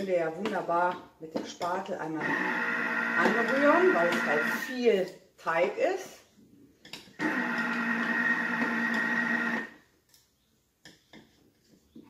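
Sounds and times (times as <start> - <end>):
food processor motor whining: 2.2 - 4.7, 7.2 - 9.8.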